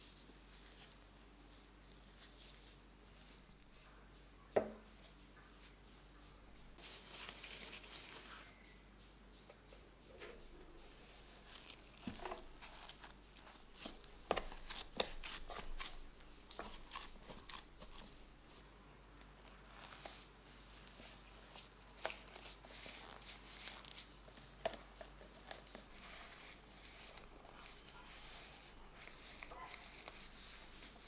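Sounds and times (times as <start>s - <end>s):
cling film crinkling: 19.4s - 31.0s.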